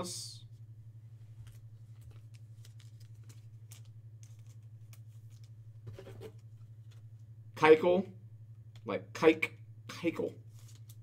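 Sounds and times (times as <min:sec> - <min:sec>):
low hum: 0:00.0 - 0:11.0
trading cards flicking and rustling: 0:01.3 - 0:07.1, 0:10.4 - 0:11.0.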